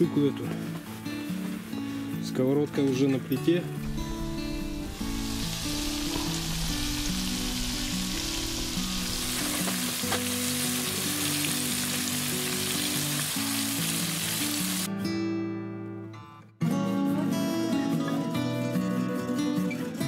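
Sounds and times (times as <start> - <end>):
background guitar music: 0.0 - 20.0
fish frying in hot oil: 4.9 - 14.9.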